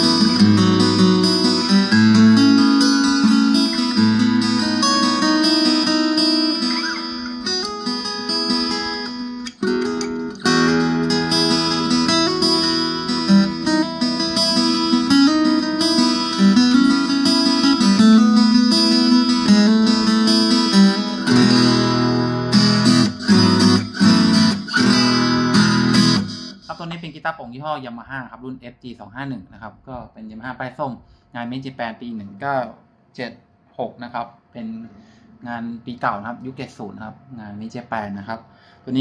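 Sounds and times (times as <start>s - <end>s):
fingerstyle acoustic guitar: 0.0s - 26.8s.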